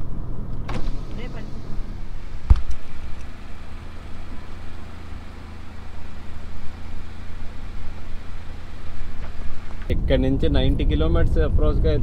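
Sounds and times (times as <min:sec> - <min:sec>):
car engine running: 0:00.0 - 0:11.7
thump: 0:02.4 - 0:02.8.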